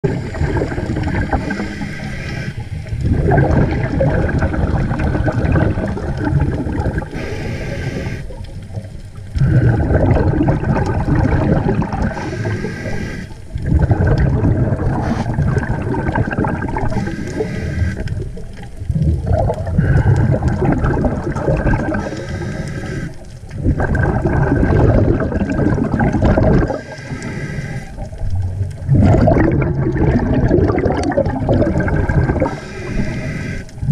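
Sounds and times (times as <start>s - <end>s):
exhaled bubbles rushing: 0.0s - 33.9s
diver breathing through regulator: 0.1s - 2.9s, 7.0s - 8.4s, 9.4s - 10.4s, 12.0s - 13.6s, 14.7s - 15.7s, 16.8s - 18.2s, 19.6s - 20.7s, 21.9s - 23.4s, 26.6s - 28.2s, 32.3s - 33.9s.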